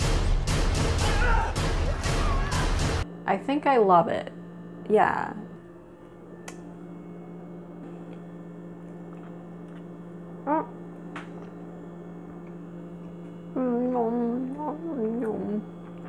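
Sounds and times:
low electrical hum: 0.0 - 16.0
woman humming while eating: 10.4 - 11.0, 13.5 - 16.0.

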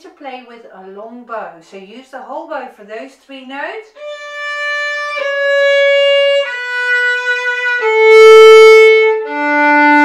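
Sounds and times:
violin playing sustained notes: 4.0 - 10.0.

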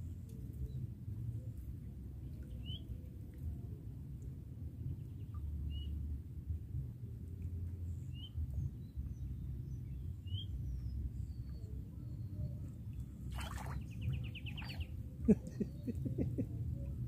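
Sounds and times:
low outdoor rumble: 0.0 - 17.0
splash of fish from water: 13.3 - 13.8
bird chirps: 13.4 - 15.9.

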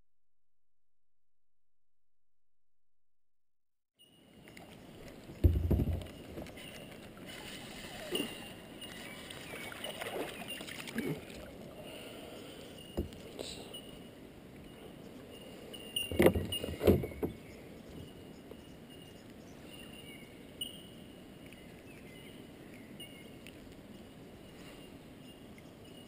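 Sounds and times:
knocks and splashes: 5.3 - 7.2, 9.3 - 11.5
faint high chirps: 17.0 - 26.0.

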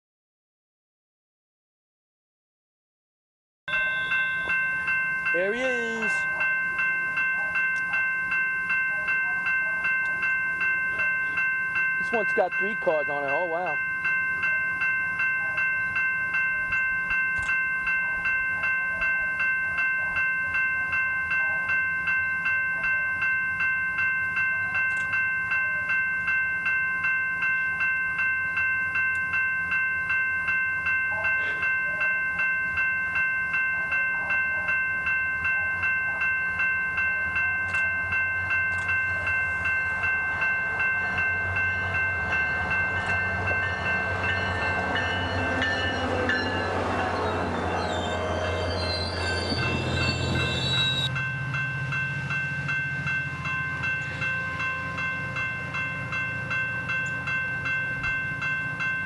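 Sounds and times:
warning bell ringing: 3.7 - 59.0
train rumble: 37.3 - 59.0.

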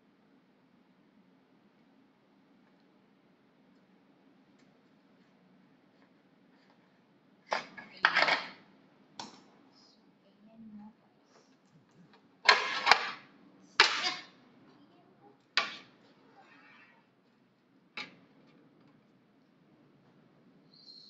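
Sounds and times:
metal spit scraping baking tray: 12.5 - 13.2, 13.8 - 14.3.

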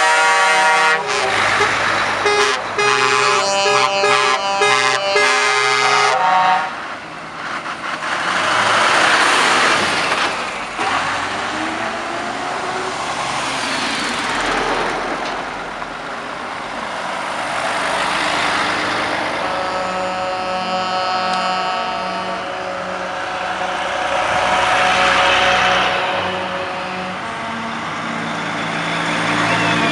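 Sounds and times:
multi-tone air horn: 0.0 - 6.8, 19.3 - 28.5
heavy trucks driving past: 0.0 - 29.9.

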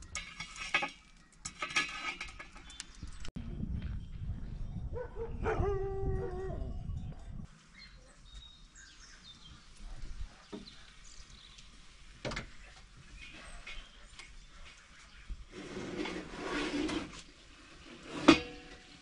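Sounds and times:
wind rumble: 2.4 - 7.5
birds chirping: 2.4 - 15.5.

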